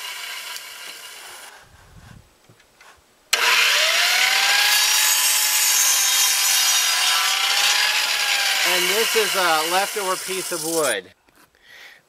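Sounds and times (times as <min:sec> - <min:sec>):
saw crosscutting wooden board: 0:00.0 - 0:01.5, 0:03.3 - 0:11.0
radial arm saw motor whine: 0:03.3 - 0:11.0.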